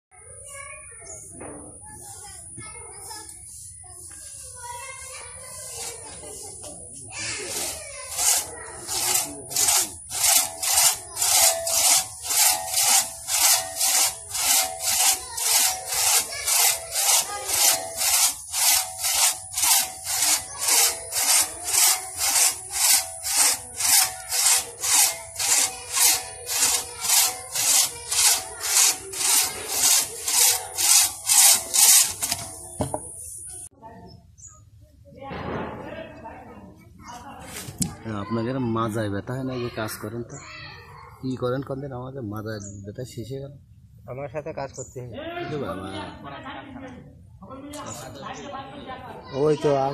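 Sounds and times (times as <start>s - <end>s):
crosscut hand saw cutting log: 5.5s - 6.4s, 7.2s - 33.2s.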